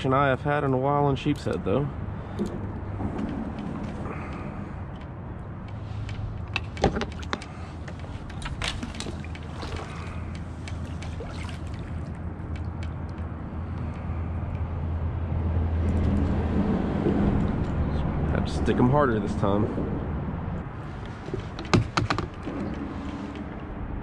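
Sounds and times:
small knocks and clicks: 2.3 - 11.1, 12.1 - 14.6, 21.0 - 23.5
water lapping against kayak hull: 6.7 - 12.8.

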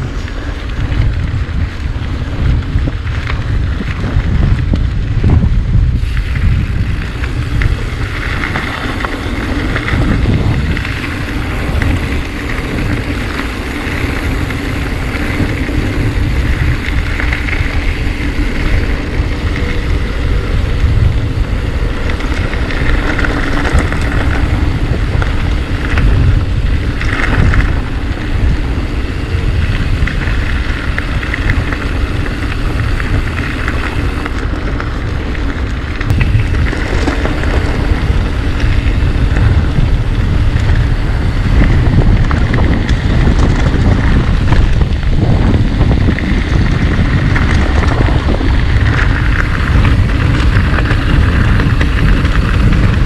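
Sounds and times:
bike tyre rumble on trail: 0.0 - 53.0
wind buffeting microphone: 0.0 - 53.0.

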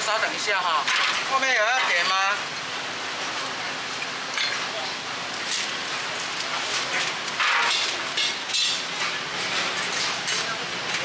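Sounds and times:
metal utensils clinking: 6.6 - 11.0.

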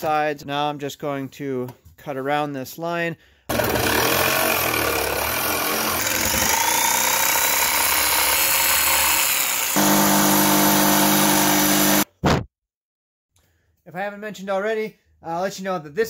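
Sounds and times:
jigsaw cutting wood: 3.5 - 12.1.

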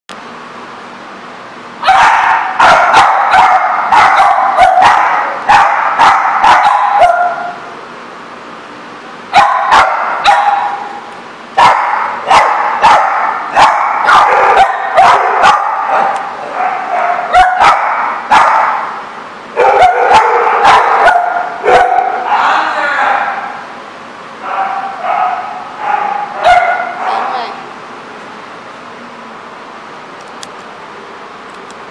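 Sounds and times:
small dogs yappy barking: 1.8 - 7.6, 9.4 - 11.0, 11.6 - 18.9, 19.6 - 22.6, 24.4 - 27.5.

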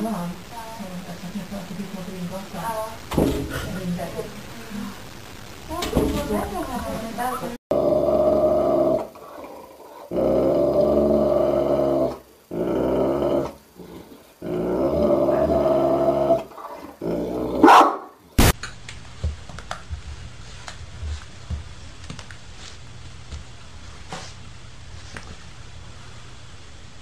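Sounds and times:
dog growling: 7.7 - 18.0
dog sharp cry: 17.6 - 18.1.

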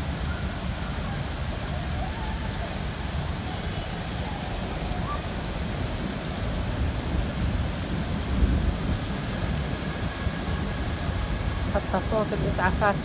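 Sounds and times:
heavy rain falling: 0.0 - 13.0
low thunder rumble: 4.6 - 13.0.

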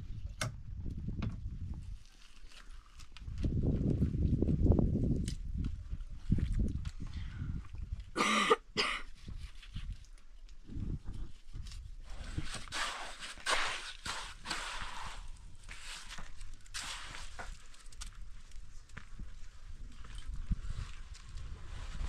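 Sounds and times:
trowel scraping wet mortar: 12.2 - 17.8.

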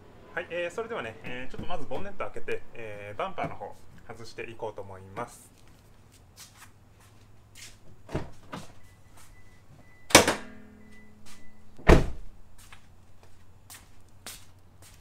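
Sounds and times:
car hood popping metallic clunk: 10.1 - 10.8
car door shutting thud: 11.8 - 12.3.

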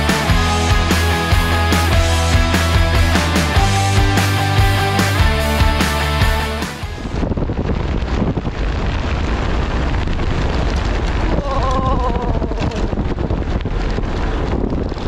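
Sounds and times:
wind buffeting microphone: 6.8 - 15.0
tyres rumbling on road: 7.0 - 15.0.

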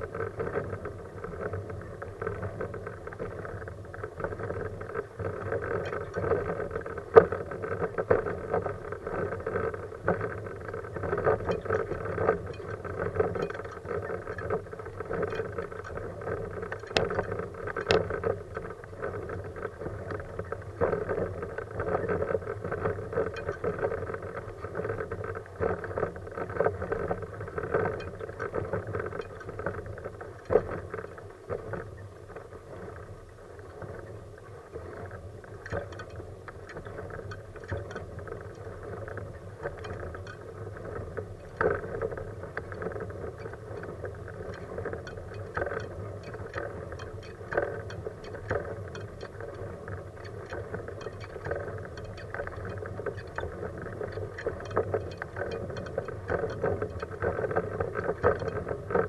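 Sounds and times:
wheelchair rolling on asphalt: 0.0 - 59.0.

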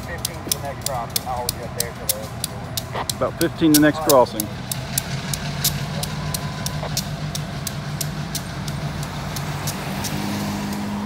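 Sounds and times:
diesel locomotive engine hum: 0.0 - 11.0
rapid even ticking: 0.0 - 11.0.

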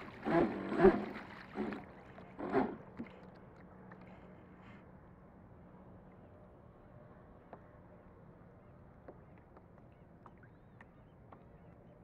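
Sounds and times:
water lapping against hull: 0.0 - 4.8.

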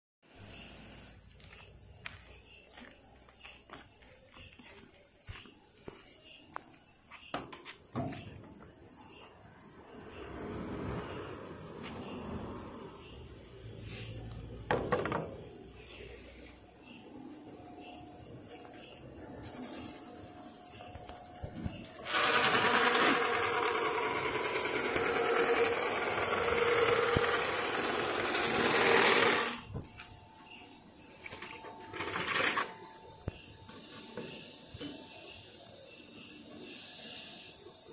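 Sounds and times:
sanding machine whine: 19.4 - 35.0
loud rasping of wood sanding: 22.0 - 29.6.

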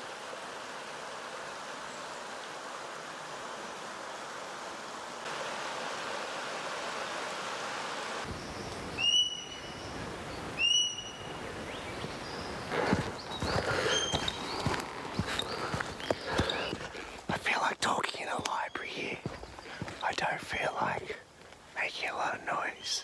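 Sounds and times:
creek water running over rocks: 0.0 - 22.7
bird whistling: 8.9 - 9.9, 10.6 - 12.5, 13.2 - 14.8.

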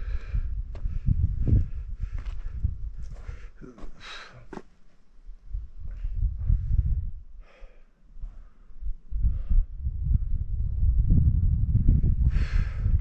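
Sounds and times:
low rumbling on microphone: 0.0 - 4.4, 5.4 - 7.6, 8.2 - 13.0
person breathing hard: 0.0 - 4.6, 5.8 - 9.7, 12.2 - 13.0.

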